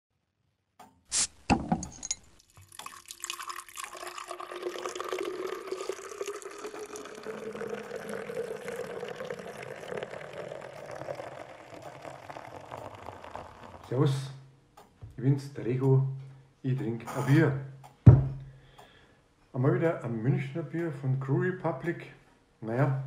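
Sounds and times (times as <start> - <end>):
bottle cap popping off: 1.1 - 2.2
beer pouring into glass: 2.0 - 14.3.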